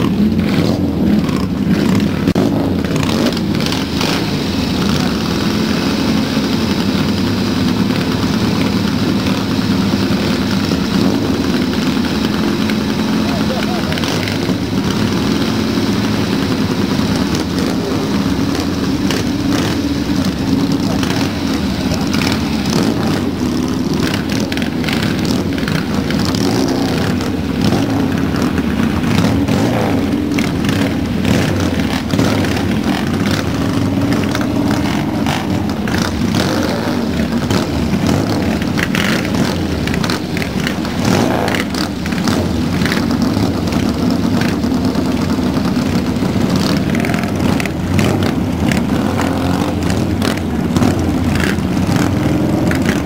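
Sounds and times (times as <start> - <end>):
motorcycles revving: 0.0 - 53.0.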